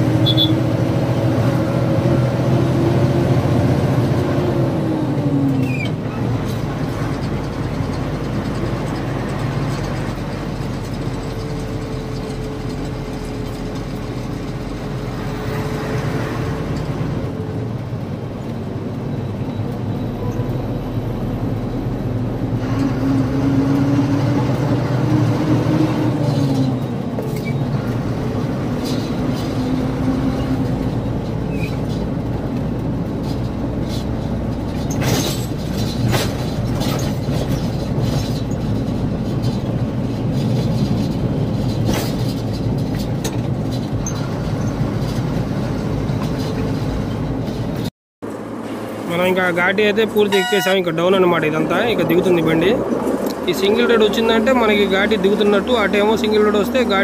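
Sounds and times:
knocks and rattles in cab: 0:30.1 - 0:47.9.

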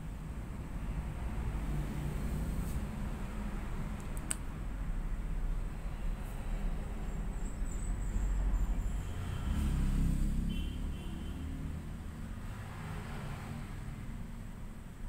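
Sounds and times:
sharp click: 0:04.0 - 0:04.5.

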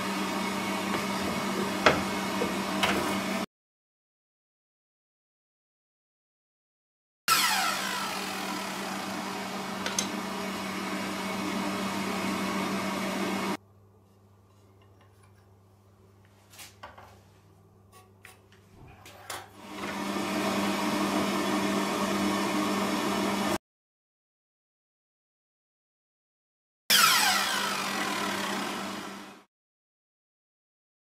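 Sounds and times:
mitre saw cutting wood: 0:00.0 - 0:03.4, 0:07.3 - 0:13.6, 0:26.9 - 0:29.5.

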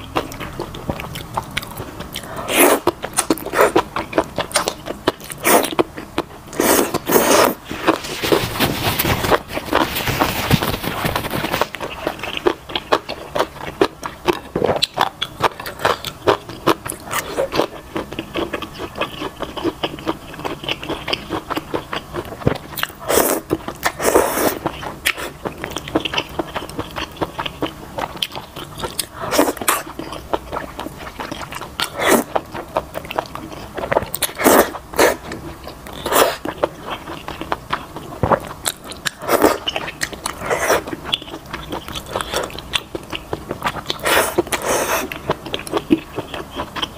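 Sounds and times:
noodle slurping: 0:06.5 - 0:12.2, 0:23.0 - 0:25.3, 0:31.9 - 0:32.4, 0:39.2 - 0:40.9, 0:43.9 - 0:45.2.

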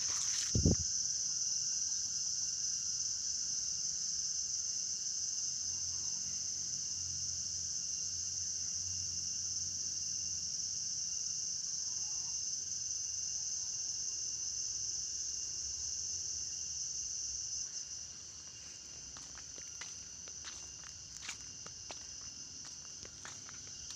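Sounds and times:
high-pitched insect chorus: 0:00.0 - 0:23.9
footsteps on concrete: 0:18.2 - 0:23.9.

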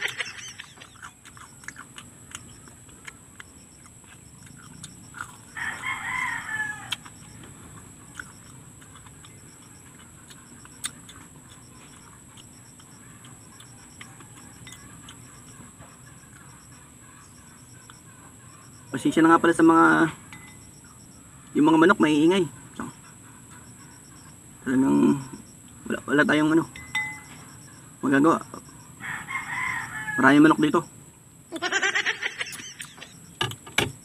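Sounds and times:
crunchy chewing: 0:00.0 - 0:30.9, 0:32.5 - 0:33.4
rooster crowing: 0:05.2 - 0:07.4, 0:13.0 - 0:19.2, 0:28.9 - 0:30.8.

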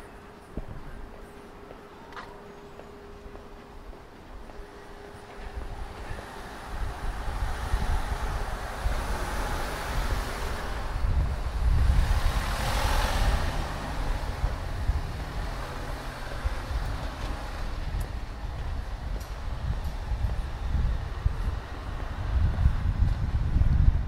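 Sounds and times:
car driving past: 0:05.8 - 0:18.0
steady low rumble: 0:13.2 - 0:24.0.

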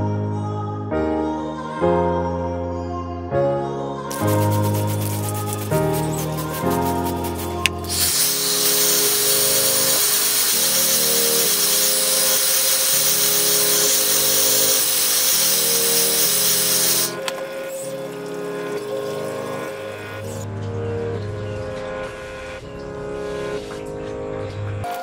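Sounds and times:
hair dryer blowing: 0:04.1 - 0:17.9.

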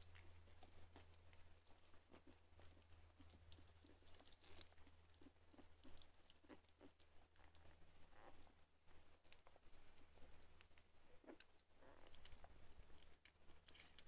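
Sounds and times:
low steady hum: 0:00.0 - 0:14.0
puppies suckling: 0:00.0 - 0:14.0.

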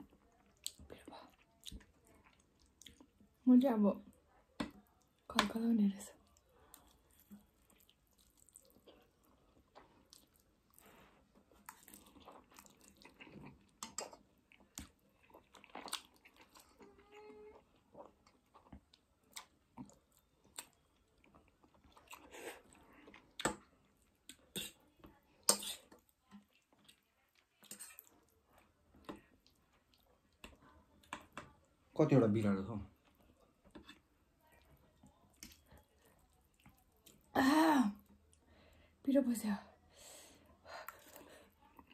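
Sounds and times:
person eating noodles: 0:06.3 - 0:24.8, 0:25.4 - 0:31.3.

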